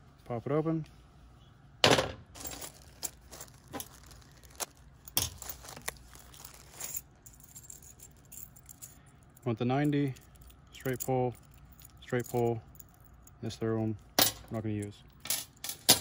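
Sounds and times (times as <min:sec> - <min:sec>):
plastic bag rustling: 0:02.2 - 0:07.1.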